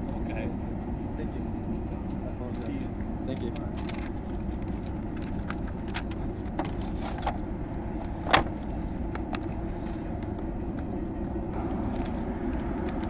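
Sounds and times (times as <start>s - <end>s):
steady low rumble: 0.0s - 13.0s
paper rustling: 3.4s - 7.4s.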